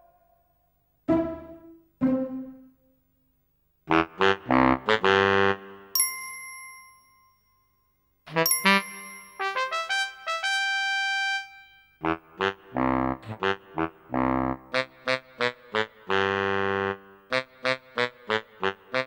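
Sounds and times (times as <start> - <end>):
cartoon music punchy notes: 1.1 - 2.8
bell ding: 6.0 - 9.7
ringing chime notes: 6.0 - 9.9.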